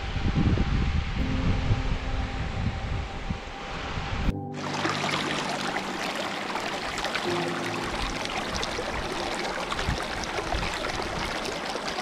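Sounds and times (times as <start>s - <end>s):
soft background music: 1.2s - 11.2s
water rushing: 3.2s - 12.0s.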